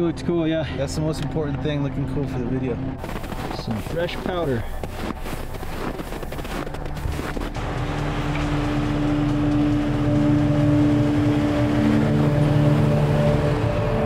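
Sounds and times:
music with low chord tones: 0:00.0 - 0:14.0
boots crunching through snow: 0:03.0 - 0:07.6.

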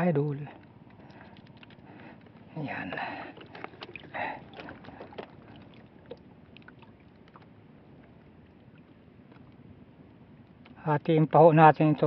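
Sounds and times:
water washing against hull: 0:00.9 - 0:09.7.

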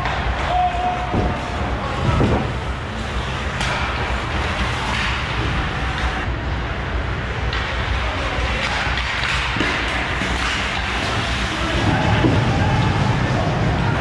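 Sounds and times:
noisy rink hum: 0:00.0 - 0:14.0.

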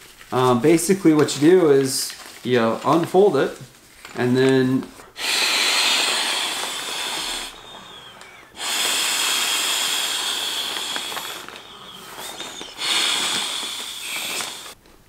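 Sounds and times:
breath blowing into pillow valve: 0:05.1 - 0:14.8.

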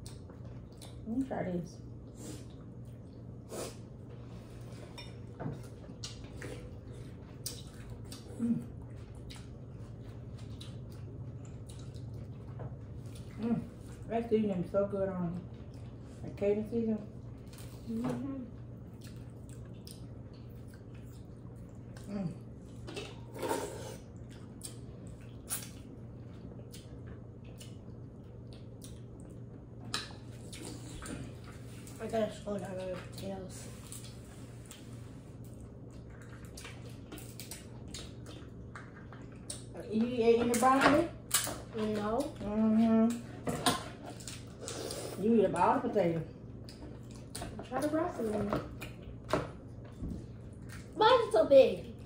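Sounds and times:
low steady hum: 0:00.0 - 0:52.0
wet eating smacks and clicks: 0:18.9 - 0:22.1, 0:24.2 - 0:25.9, 0:26.6 - 0:31.3, 0:33.8 - 0:39.7.

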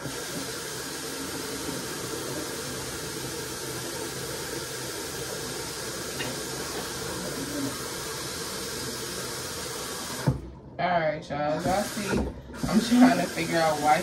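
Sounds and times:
hair dryer blowing: 0:11.6 - 0:14.0.

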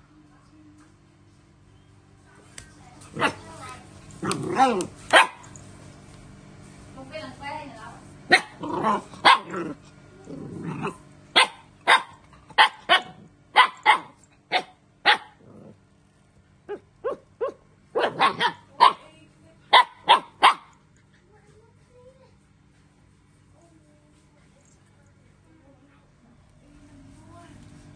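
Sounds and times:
puppy barking and yapping: 0:04.2 - 0:05.6, 0:08.3 - 0:09.6, 0:11.3 - 0:15.4, 0:16.7 - 0:19.1, 0:19.7 - 0:20.8.

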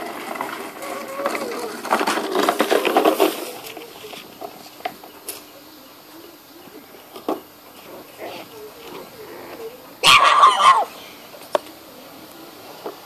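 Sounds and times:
puppies yapping and growling: 0:07.8 - 0:11.0.

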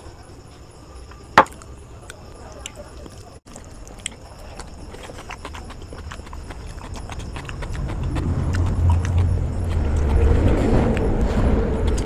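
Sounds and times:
wet eating and chewing sounds: 0:01.1 - 0:12.0
low rumble: 0:07.6 - 0:12.0.

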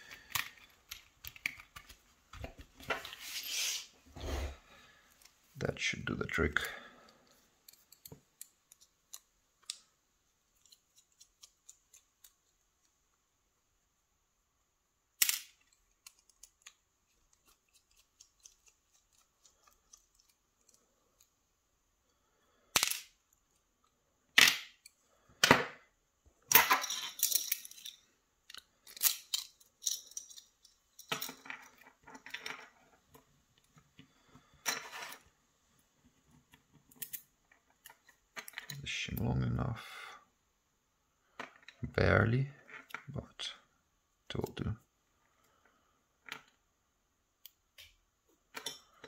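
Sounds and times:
small metal lock parts clicking: 0:07.6 - 0:09.9, 0:15.2 - 0:21.4, 0:26.6 - 0:32.7, 0:36.8 - 0:38.8.

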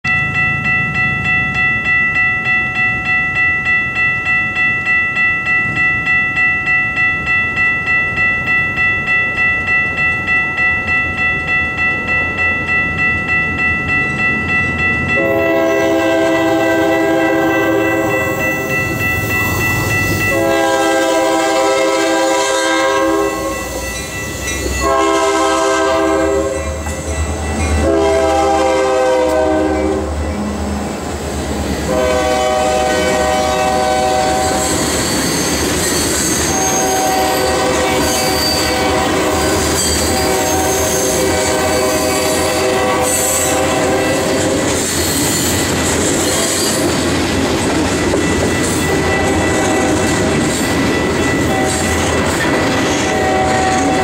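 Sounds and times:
crossing bell ringing: 0:00.0 - 0:54.0
locomotive air horn blasts: 0:15.2 - 0:18.4, 0:20.3 - 0:23.7, 0:24.8 - 0:26.7, 0:27.8 - 0:30.2, 0:31.9 - 0:34.6, 0:36.5 - 0:39.4, 0:40.2 - 0:44.4, 0:53.1 - 0:54.0.

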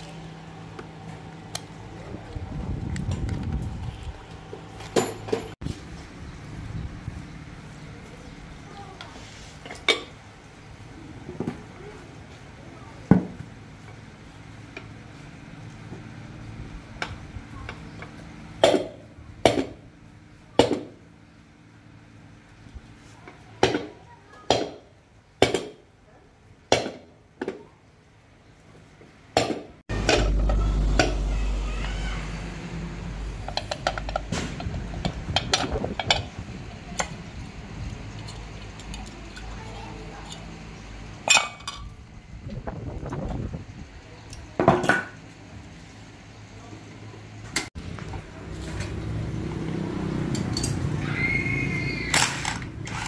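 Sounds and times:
metal fan parts clinking: 0:04.1 - 0:05.6, 0:33.4 - 0:40.6, 0:41.2 - 0:42.0, 0:50.2 - 0:50.9.

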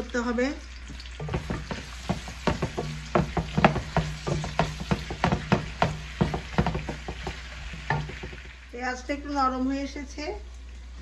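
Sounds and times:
onion sizzling in oil: 0:00.0 - 0:09.4
wooden spoon scraping and knocking pan: 0:01.2 - 0:08.6.

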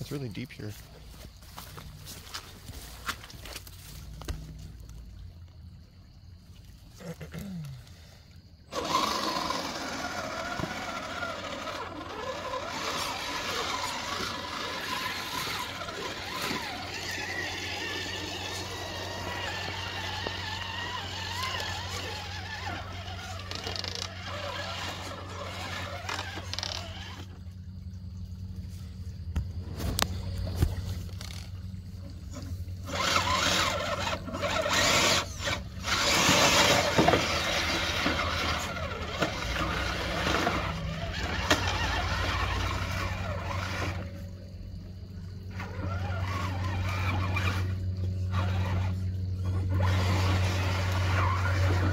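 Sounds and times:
trucks splashing through water: 0:08.7 - 0:23.5, 0:24.1 - 0:27.3, 0:32.6 - 0:44.1, 0:45.5 - 0:51.9
toy truck electric motors whining: 0:08.7 - 0:27.6, 0:29.9 - 0:51.9.

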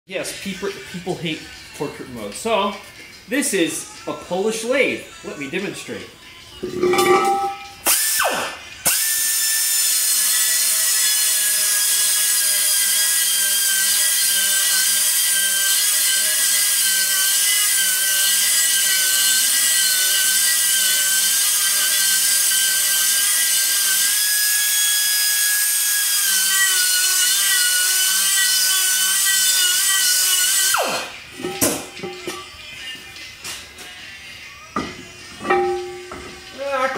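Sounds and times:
pneumatic air tool whining: 0:07.8 - 0:31.8.

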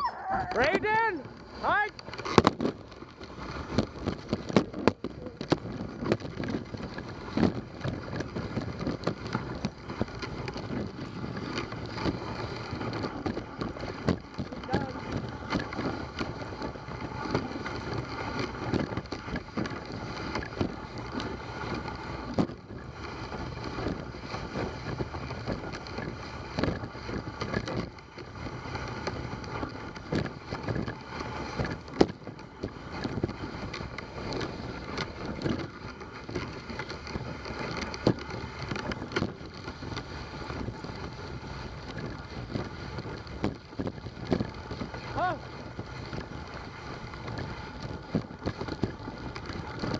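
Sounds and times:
wind on microphone: 0:00.0 - 0:01.0
sled knocks and bumps: 0:00.0 - 0:49.9
sled runners scraping snow: 0:00.0 - 0:49.9.

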